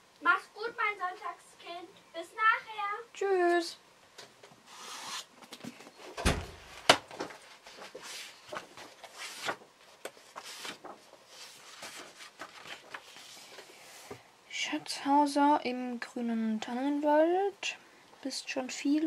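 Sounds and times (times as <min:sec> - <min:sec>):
rustling: 0:04.7 - 0:14.2
door shutting with a thud: 0:06.2 - 0:06.6.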